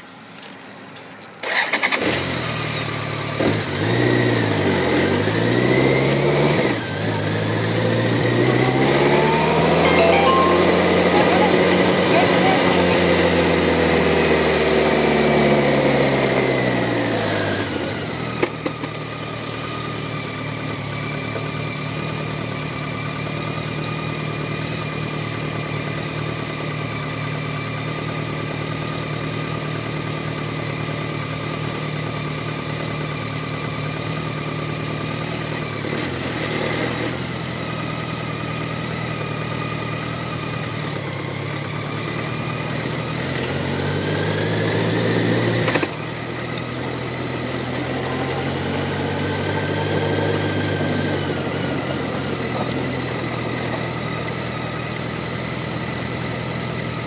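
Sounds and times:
motorcycle engine idling: 10.8s - 35.8s, 37.2s - 44.3s, 45.9s - 57.0s.

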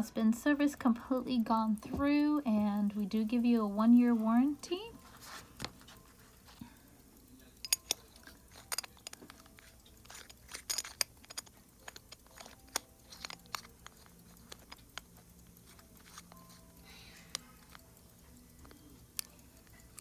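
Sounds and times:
pocket watch clicks and scrapes: 7.4s - 20.0s.

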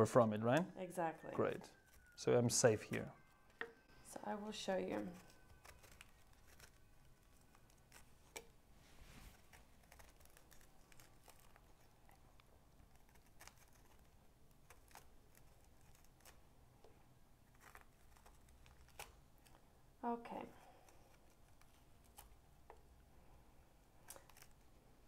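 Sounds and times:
knife cutting fruit rind: 4.7s - 8.6s, 9.3s - 19.6s.

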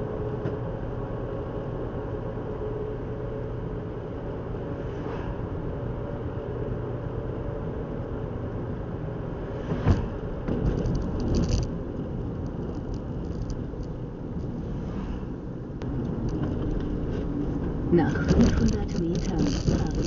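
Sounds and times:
car road and engine rumble: 0.0s - 20.0s
rattling clicks: 10.6s - 11.7s, 12.3s - 14.5s, 18.1s - 20.0s.

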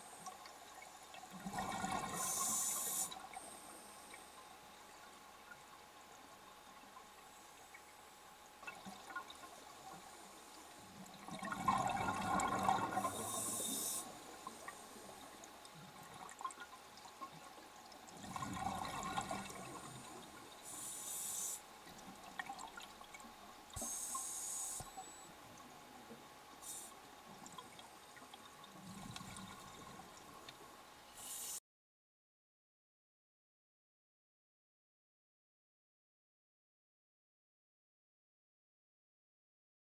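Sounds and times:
exhaled bubbles rumbling: 1.4s - 2.2s, 11.2s - 13.4s, 18.2s - 20.2s
hissing regulator inhalations: 2.1s - 3.2s, 13.0s - 14.2s, 20.6s - 21.6s, 23.8s - 25.1s, 31.2s - 31.6s.

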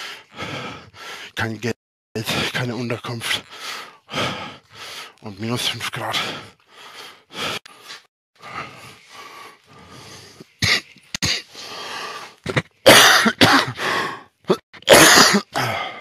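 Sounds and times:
person coughing: 10.6s - 11.5s, 12.5s - 13.8s, 14.5s - 16.0s.

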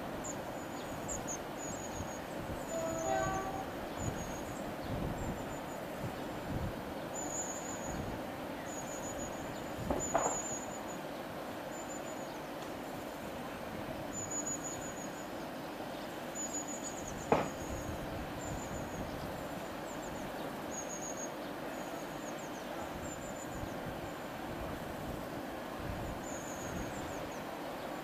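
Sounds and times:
diesel train approaching: 0.0s - 9.8s
short high-pitched squeaks: 2.7s - 4.4s.

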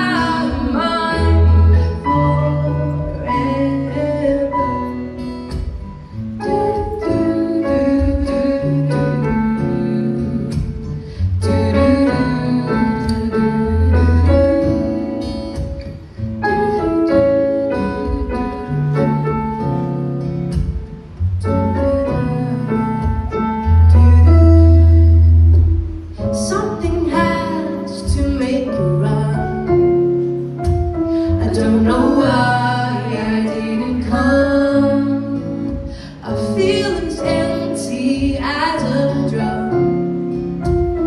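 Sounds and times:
electric guitar: 0.0s - 41.0s
piano: 0.0s - 41.0s
girls singing: 31.4s - 35.6s.

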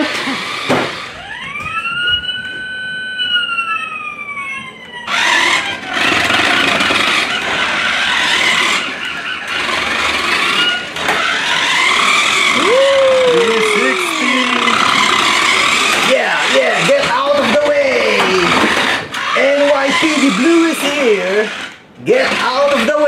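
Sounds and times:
toy car motor whirring: 0.0s - 3.6s, 5.0s - 23.0s
high squeal: 11.7s - 16.1s.

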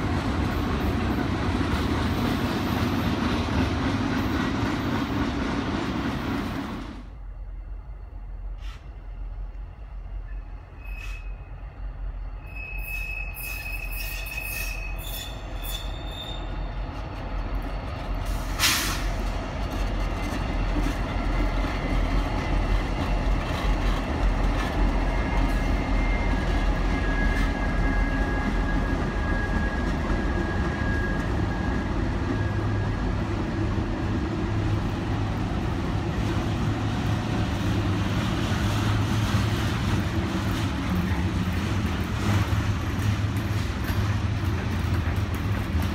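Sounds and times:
diesel locomotive engines rumbling: 0.0s - 45.9s
wheel flanges squealing on rail: 9.9s - 19.3s, 20.1s - 33.8s.

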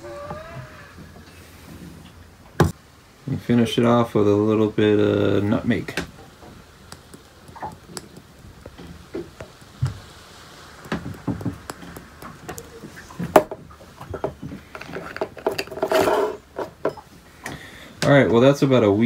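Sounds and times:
glass jars knocking on wooden table: 10.8s - 12.7s.

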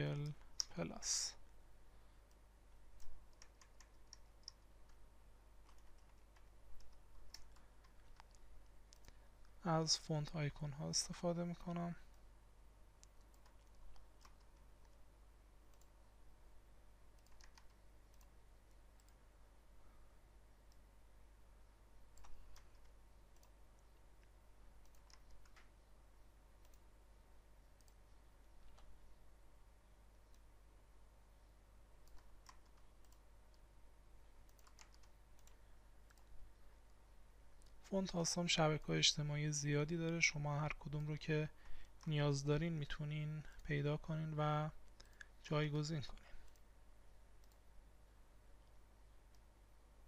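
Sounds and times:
faint keyboard keystrokes: 5.6s - 9.2s, 17.2s - 18.4s, 22.1s - 25.7s, 34.4s - 36.4s.

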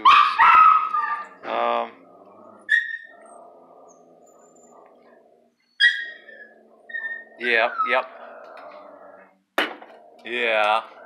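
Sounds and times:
dog yelping: 0.0s - 1.4s, 2.6s - 4.7s, 5.7s - 8.3s.

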